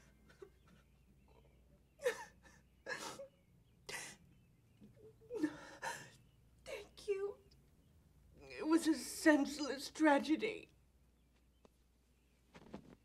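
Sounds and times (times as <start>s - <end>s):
woman sobbing: 2.0s - 4.2s, 5.0s - 6.3s.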